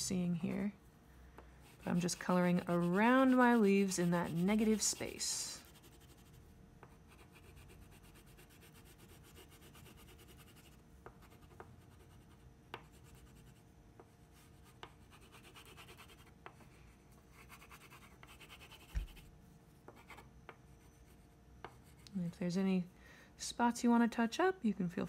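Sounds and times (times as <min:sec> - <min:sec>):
crayon rubbing on paper: 0:01.8 - 0:06.4.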